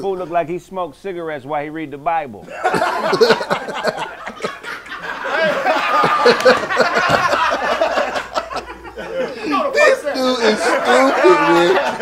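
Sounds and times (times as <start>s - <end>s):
group of people laughing: 2.5s - 12.0s.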